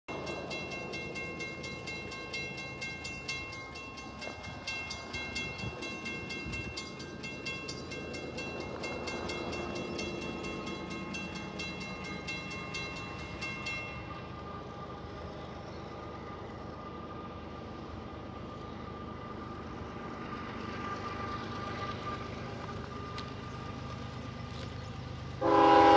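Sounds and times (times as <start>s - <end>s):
crossing warning bell ringing: 0.1s - 25.9s.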